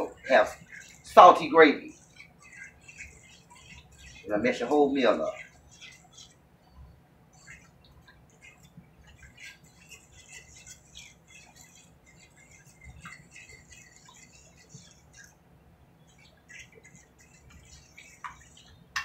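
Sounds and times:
gravy crackling in skillet: 0.0s - 6.6s, 7.3s - 15.4s.

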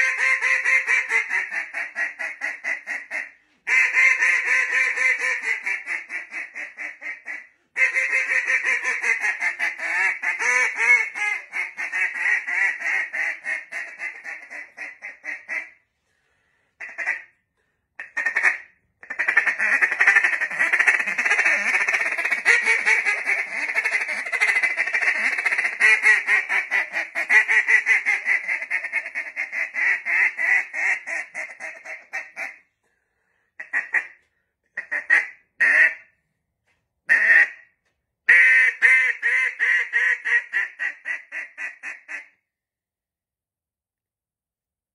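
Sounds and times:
duck call quacking: 0.0s - 15.8s, 16.8s - 17.4s, 18.0s - 32.7s, 33.6s - 34.2s, 34.8s - 36.1s, 37.1s - 37.7s, 38.3s - 42.4s.

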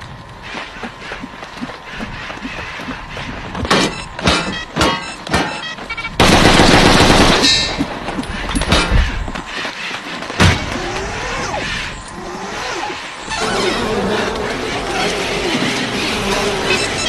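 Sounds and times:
continuous burst of gunfire: 3.6s - 11.5s
rifle shots: 6.2s - 7.5s.

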